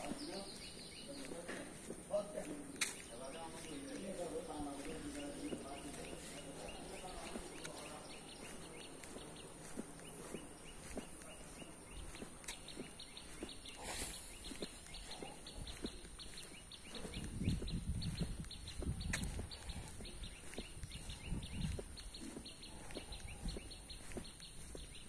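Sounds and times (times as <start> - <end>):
footsteps on asphalt: 0.0 - 25.0
wind rumble on microphone: 15.5 - 24.7.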